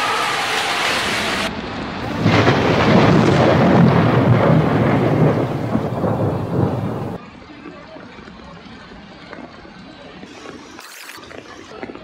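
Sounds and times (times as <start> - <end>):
heavy low rumble: 2.0 - 7.2.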